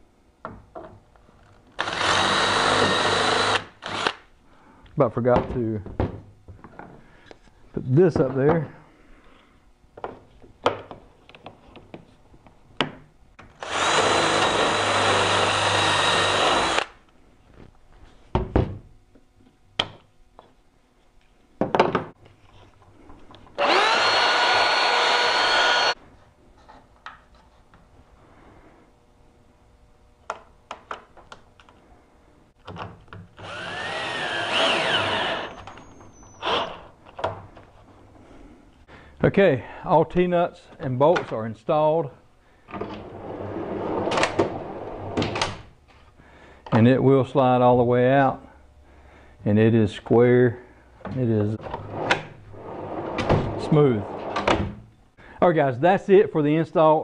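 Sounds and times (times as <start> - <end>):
cordless drill boring: 1.8 - 4.2, 13.6 - 16.9, 23.6 - 26.0, 33.4 - 35.7, 36.4 - 36.8.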